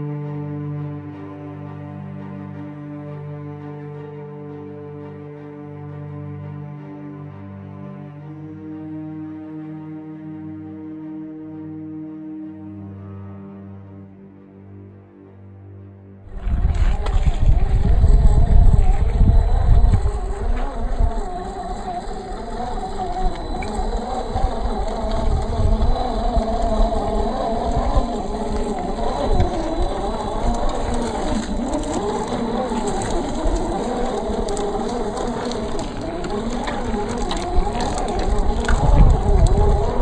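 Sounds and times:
electric motor and gear whine: 0:16.3 - 0:40.0
low rumbling: 0:16.3 - 0:40.0
tyres crunching over dirt: 0:16.3 - 0:40.0.

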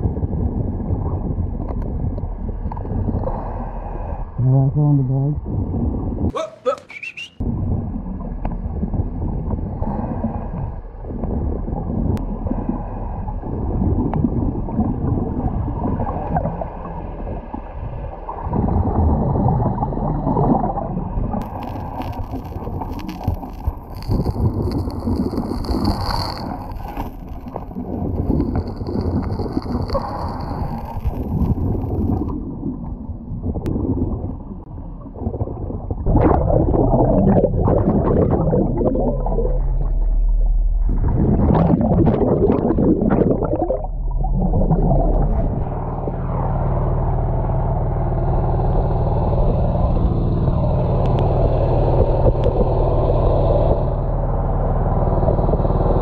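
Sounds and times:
underwater bubbles gurgling: 0:00.0 - 0:04.4, 0:05.1 - 0:06.3, 0:07.4 - 0:46.3, 0:48.6 - 0:56.0
thin high whistle: 0:06.8 - 0:07.4.

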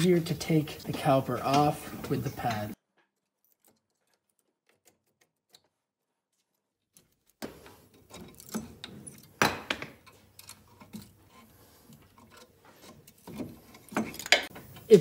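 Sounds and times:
metal clinks and scrapes of tools: 0:06.9 - 0:15.0.

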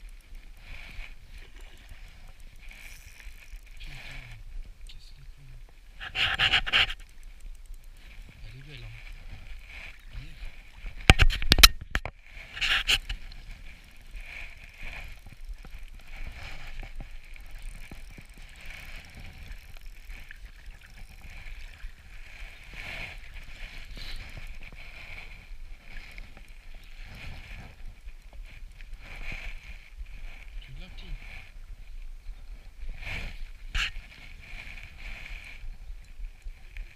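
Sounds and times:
water sloshing and lapping: 0:00.0 - 0:31.7.

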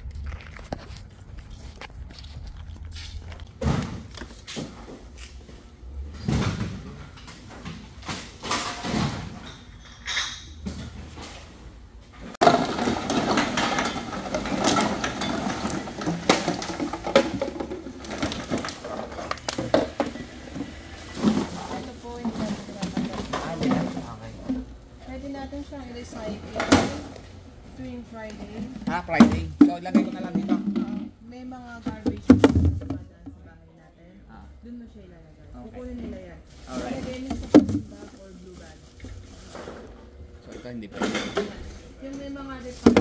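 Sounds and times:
bottles clattering on metal table: 0:06.2 - 0:11.4, 0:12.4 - 0:24.7, 0:28.5 - 0:31.2, 0:40.5 - 0:41.8
plastic bag rustling: 0:12.4 - 0:24.5, 0:36.2 - 0:40.0.

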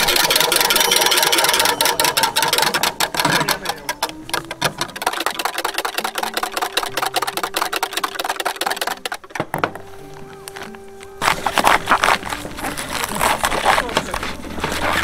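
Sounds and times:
whisk rattling in plastic jug: 0:00.0 - 0:09.4.

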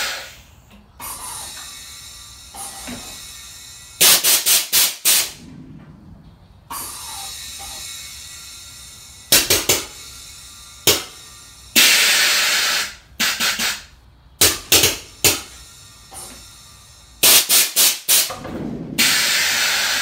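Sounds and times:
air suspension valve pops: 0:10.9 - 0:11.2, 0:11.8 - 0:15.5
hiss of rushing air: 0:15.9 - 0:20.0.

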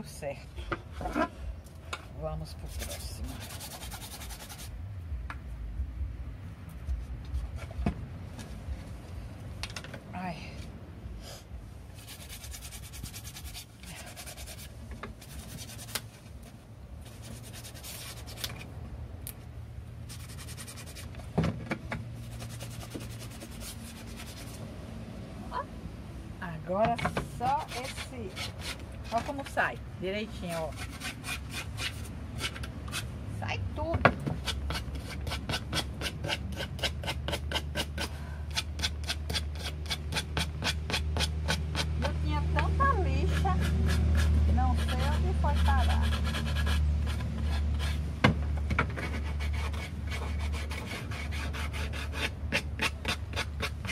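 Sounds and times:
nail file sanding wood: 0:02.6 - 0:04.7, 0:12.0 - 0:16.1, 0:17.1 - 0:18.6, 0:20.1 - 0:21.2, 0:22.2 - 0:24.6, 0:27.4 - 0:29.6, 0:30.4 - 0:33.1, 0:34.4 - 0:42.2, 0:43.2 - 0:48.0, 0:48.9 - 0:53.9
nail file rasping: 0:34.4 - 0:42.2, 0:43.2 - 0:48.0.

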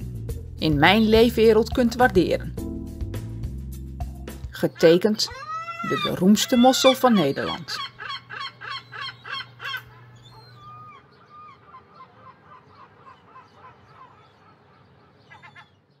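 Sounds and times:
seagulls calling: 0:04.6 - 0:16.0.

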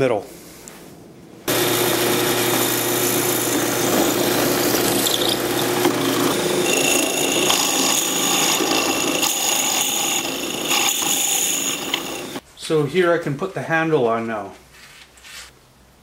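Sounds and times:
drill press boring wood: 0:01.5 - 0:12.4.

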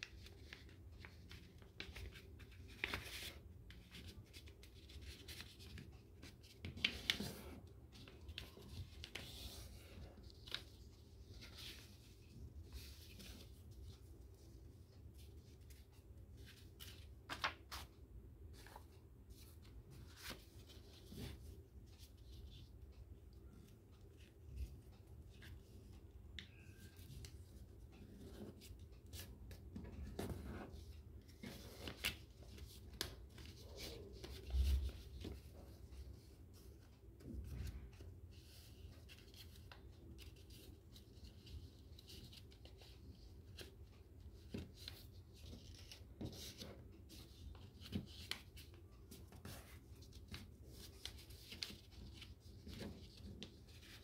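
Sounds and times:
paper rustling and crinkling: 0:00.0 - 0:13.6, 0:16.4 - 0:18.0, 0:31.3 - 0:35.9, 0:43.5 - 0:54.0.

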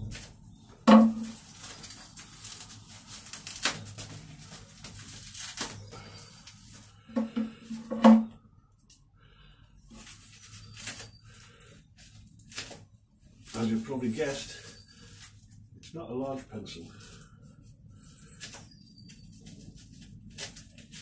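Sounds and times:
cardboard and tape tearing: 0:01.2 - 0:06.7, 0:12.1 - 0:12.8, 0:19.4 - 0:21.0
scissors cutting wrapping: 0:01.2 - 0:06.7, 0:10.0 - 0:11.4, 0:18.1 - 0:21.0.

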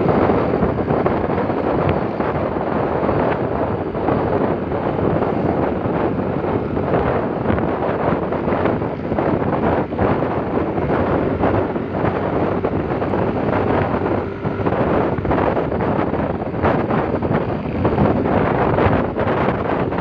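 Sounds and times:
road noise: 0:00.0 - 0:20.0
scooter engine: 0:00.0 - 0:20.0
wind buffeting microphone: 0:00.0 - 0:20.0.

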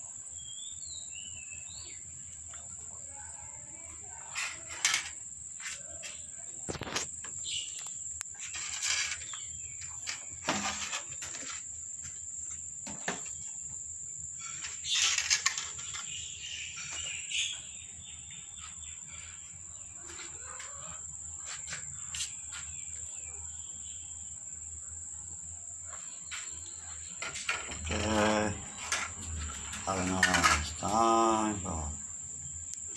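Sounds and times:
cats eating on tiled floor: 0:01.8 - 0:07.2, 0:17.9 - 0:21.2, 0:25.8 - 0:31.6
rustle: 0:04.2 - 0:13.4
high-pitched insect drone: 0:04.3 - 0:32.9.

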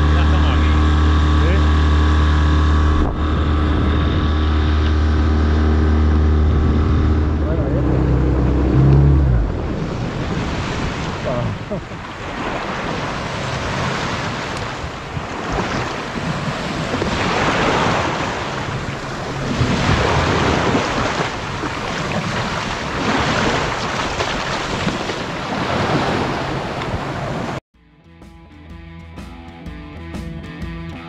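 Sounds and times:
wind on microphone: 0:01.1 - 0:27.6
small waves breaking on beach: 0:09.7 - 0:27.6.

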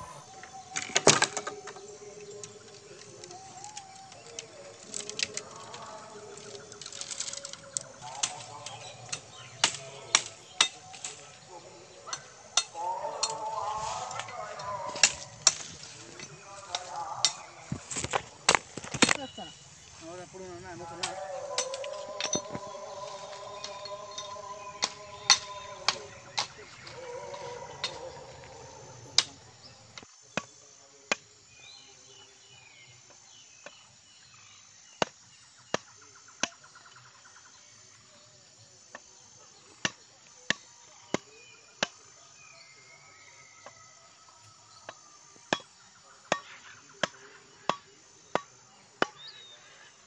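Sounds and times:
faint bird chirps: 0:00.0 - 0:18.4, 0:19.1 - 0:38.4
machete chopping bamboo: 0:16.8 - 0:19.3.

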